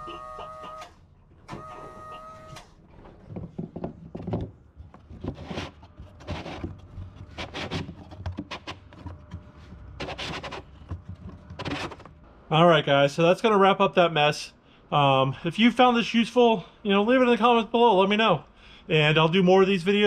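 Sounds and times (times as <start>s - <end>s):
electric pump motor whining: 0.0s - 2.8s
handling clicks and knocks: 2.8s - 12.2s.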